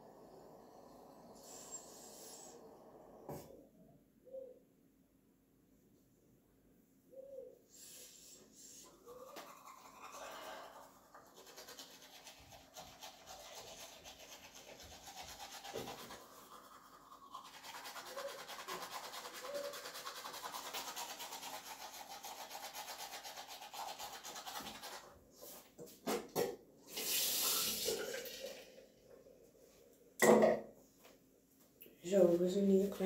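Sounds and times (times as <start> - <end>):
toothbrush scrubbing teeth: 8.6 - 25.2.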